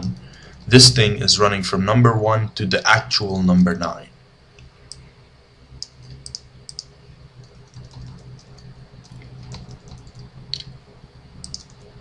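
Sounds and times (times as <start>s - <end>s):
low steady hum: 0.0s - 12.0s
keyboard and mouse clicks: 5.8s - 10.7s, 11.4s - 11.9s.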